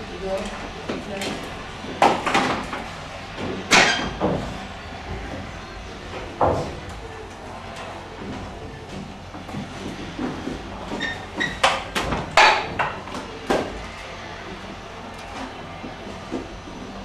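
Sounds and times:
knocks and clatter: 0.3 - 17.0
stepladder squeaks: 10.6 - 13.0.

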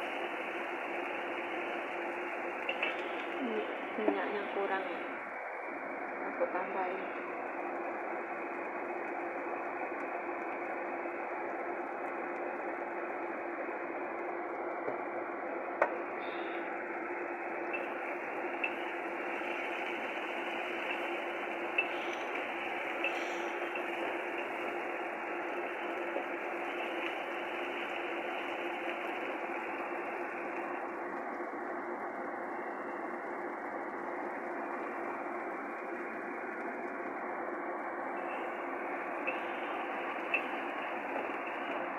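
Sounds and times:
faint steady hum: 0.0 - 41.9
spice paste sizzling in oil: 17.1 - 31.0.

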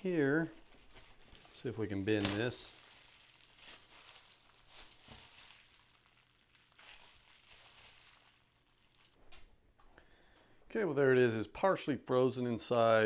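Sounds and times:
plastic gloves crinkling: 0.0 - 9.2.

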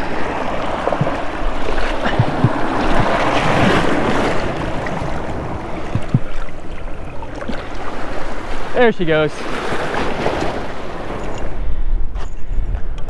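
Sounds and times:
wind on microphone: 0.0 - 8.4, 9.7 - 13.0
surf splashing over rocks: 0.0 - 10.9
soft knocks: 5.9 - 6.3.

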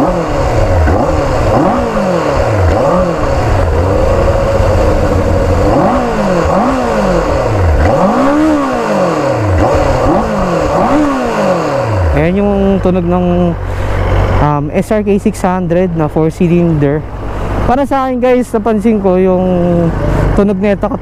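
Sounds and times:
motorcycle engine revving: 0.0 - 21.0.

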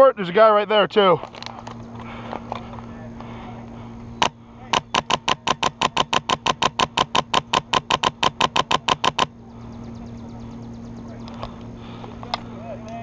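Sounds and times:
airsoft rifle rapid shots: 4.2 - 9.3.

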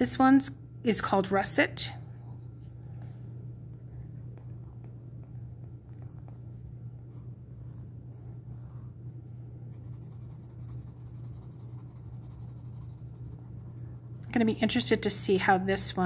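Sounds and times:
steady low hum: 0.0 - 16.0
pencil scratching on paper: 3.7 - 9.0, 9.7 - 14.8.

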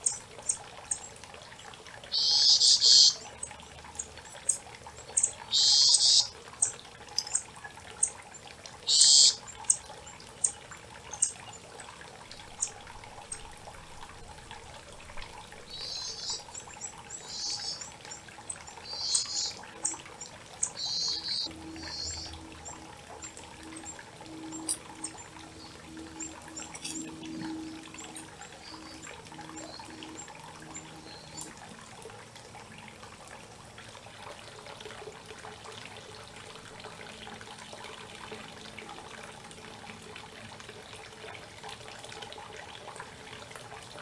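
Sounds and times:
creek trickling: 0.0 - 44.0
songbirds singing: 2.1 - 14.1, 15.2 - 31.6.

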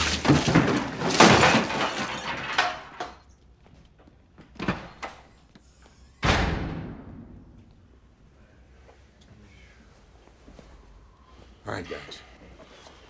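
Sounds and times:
objects crashing and clattering: 0.0 - 3.3
loud bang: 6.2 - 7.9.

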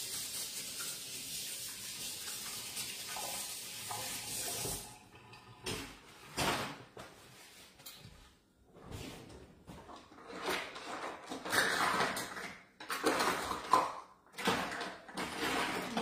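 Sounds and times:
tap running water into sink: 0.0 - 5.0.

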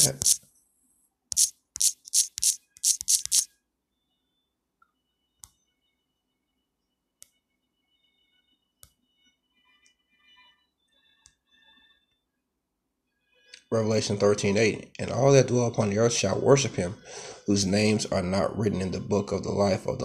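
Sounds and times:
fingertips tapping on touchscreen: 0.0 - 0.4, 1.3 - 3.5.

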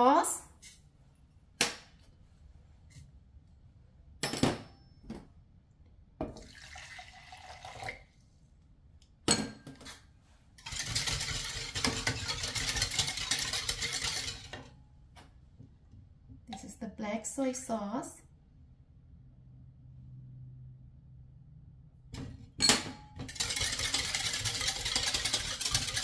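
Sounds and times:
whisk rattling in a plastic cup: 10.6 - 14.7, 23.2 - 26.0.

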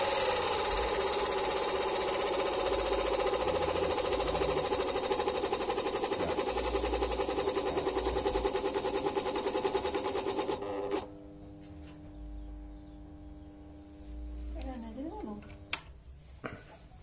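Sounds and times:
electric motor rattling: 0.0 - 11.3
faint steady hum: 6.2 - 17.0.

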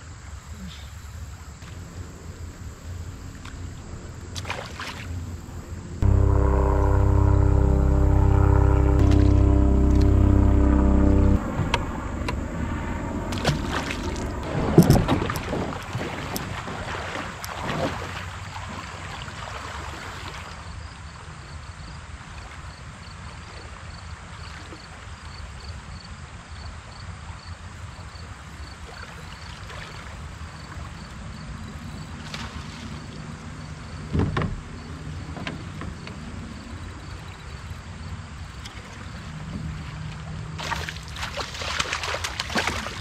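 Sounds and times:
wind: 0.0 - 43.0
low rumble of water: 1.6 - 20.9.

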